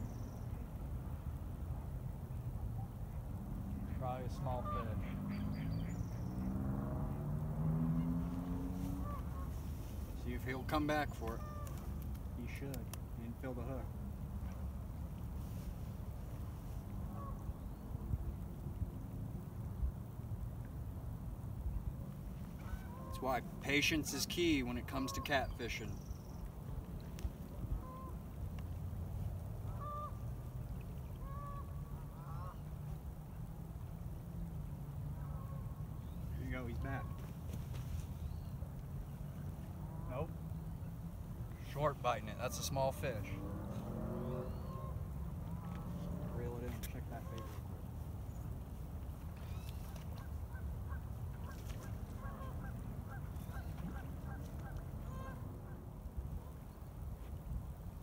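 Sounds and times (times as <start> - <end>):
geese honking: 4.0 - 6.2, 7.9 - 12.6, 17.0 - 17.6, 22.6 - 25.9, 27.7 - 28.3, 29.6 - 33.0, 35.1 - 37.3, 41.6 - 47.9, 49.4 - 55.8.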